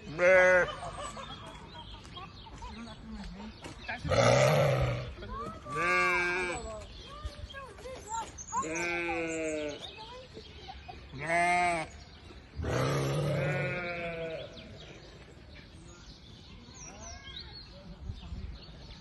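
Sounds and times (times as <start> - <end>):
sheep bleating: 0.1 - 0.7, 5.7 - 6.6, 8.6 - 9.8, 11.2 - 11.9, 12.6 - 14.6.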